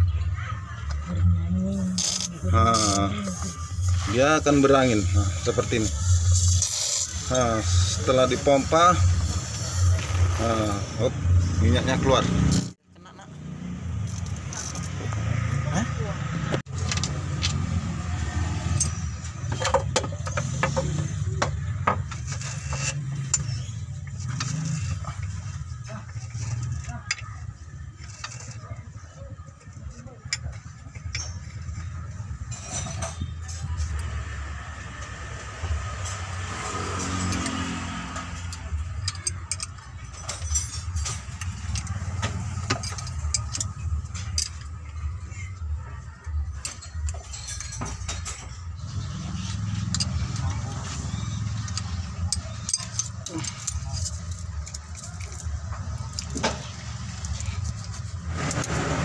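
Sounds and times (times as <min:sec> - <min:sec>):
diesel engine rumble: 0:00.0 - 0:59.0
metallic clicks of tools: 0:36.0 - 0:44.8, 0:49.4 - 0:58.8.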